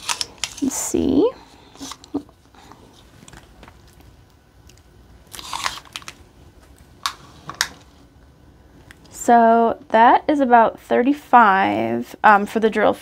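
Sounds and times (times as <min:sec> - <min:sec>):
plastic cover crinkling: 0:00.0 - 0:00.8, 0:02.9 - 0:07.9.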